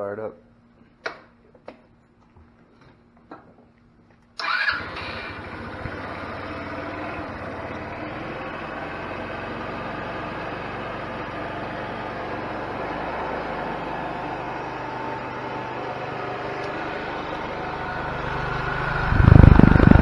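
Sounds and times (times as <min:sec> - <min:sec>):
scooter engine starting and idling: 0:04.4 - 0:20.0.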